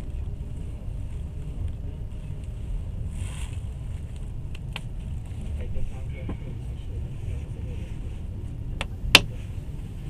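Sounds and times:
train rumble inside carriage: 0:00.0 - 0:10.0.

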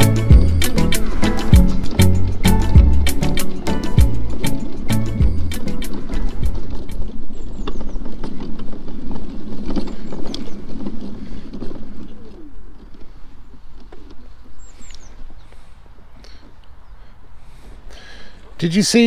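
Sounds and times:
mobility scooter rumbling: 0:00.0 - 0:17.0
bird chirping: 0:05.1 - 0:08.4, 0:13.4 - 0:17.2.

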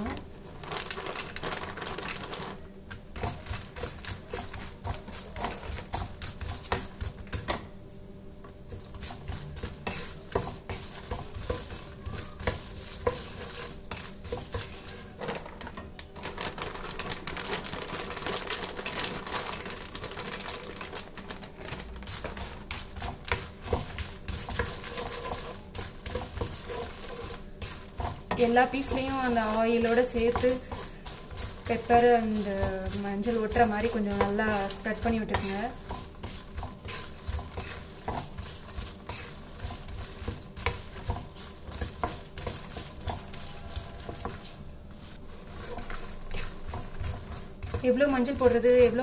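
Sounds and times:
nuts clattering in metal pan: 0:24.4 - 0:36.1.

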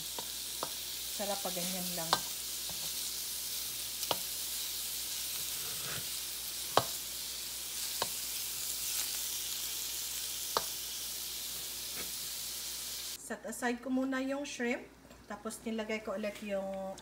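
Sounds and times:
shrimp sizzling in a pan: 0:00.0 - 0:13.2.

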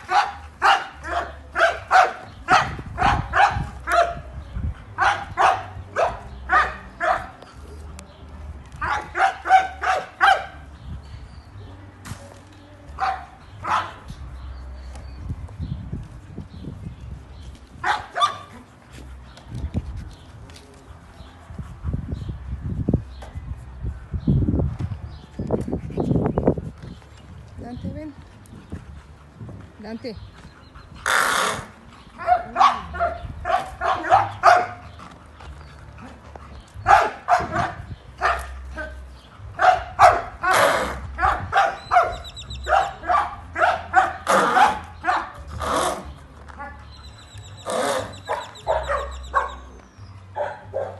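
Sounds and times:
dogs barking: 0:00.0 - 0:07.9, 0:08.7 - 0:10.8, 0:13.0 - 0:14.2, 0:17.7 - 0:18.8, 0:30.6 - 0:50.9.

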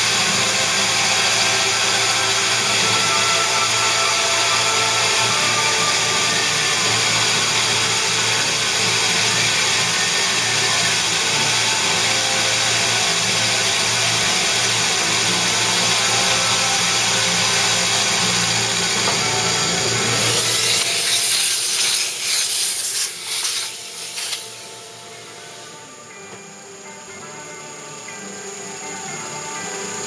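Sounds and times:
milling machine cutting metal: 0:00.0 - 0:26.8.

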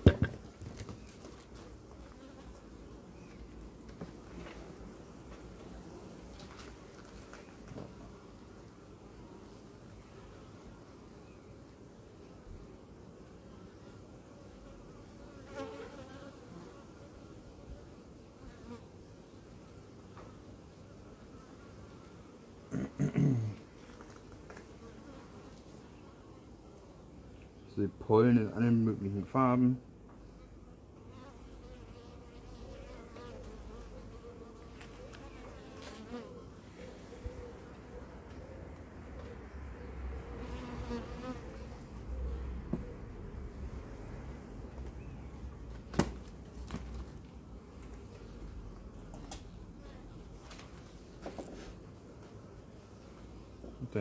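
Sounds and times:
bee colony humming: 0:00.0 - 0:54.0
louder bee buzz: 0:14.6 - 0:17.3, 0:31.1 - 0:37.7, 0:40.2 - 0:42.6
honey bees humming: 0:30.4 - 0:45.7.

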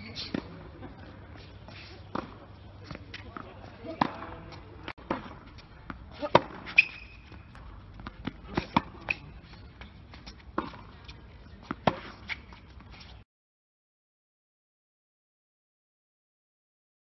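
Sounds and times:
tennis balls struck and bouncing: 0:02.0 - 0:13.1
shoe squeaks on court: 0:06.1 - 0:07.6.

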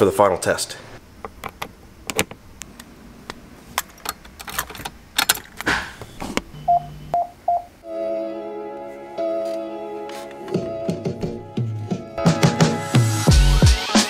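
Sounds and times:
short electronic beeps: 0:06.1 - 0:07.7
music through car speakers: 0:10.1 - 0:14.0.

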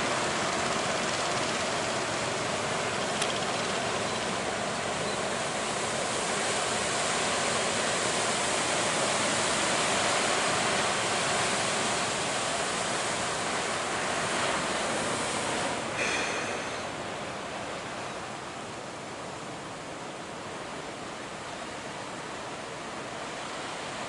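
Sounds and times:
waves breaking: 0:03.8 - 0:24.0.

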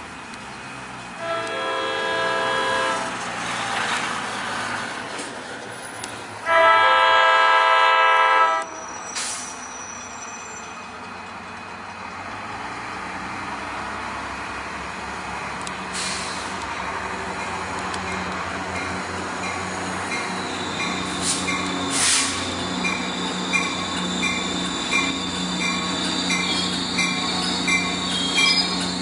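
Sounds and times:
train rumbling: 0:00.0 - 0:29.0
train horn blasts: 0:01.2 - 0:03.2, 0:06.4 - 0:08.8.

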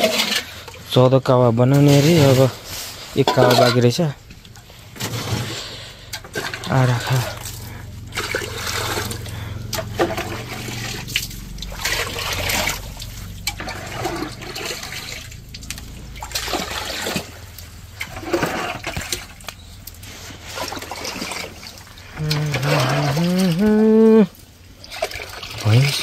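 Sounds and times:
water pouring and splashing: 0:00.0 - 0:26.0
low rumble: 0:04.1 - 0:20.5.

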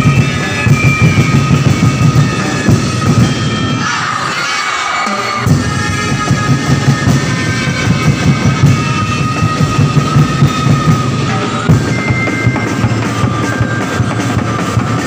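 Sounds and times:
fast dense drumming: 0:00.0 - 0:03.9, 0:05.4 - 0:15.0
festival dance music: 0:00.0 - 0:15.0
high held notes: 0:00.0 - 0:15.0.

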